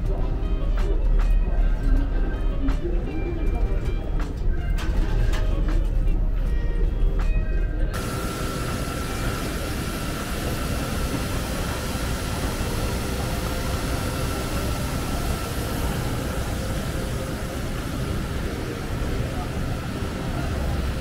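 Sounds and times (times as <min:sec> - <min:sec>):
high whine: 0:07.9 - 0:21.0
jet airliner roar: 0:08.0 - 0:21.0.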